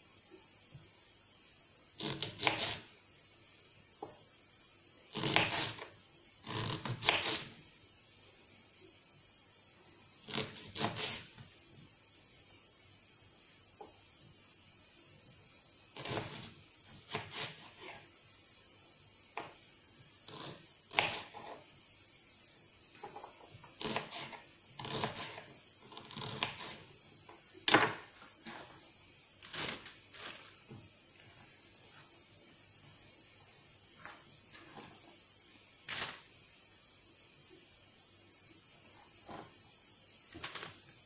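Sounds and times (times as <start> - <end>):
steady high hiss: 0.0 - 6.5, 7.1 - 41.0
knife chopping on cutting board: 2.0 - 2.8, 5.1 - 5.8, 6.5 - 7.5, 10.3 - 11.2, 16.0 - 16.5, 17.1 - 17.9, 20.3 - 21.5, 23.8 - 26.8, 27.7 - 28.6.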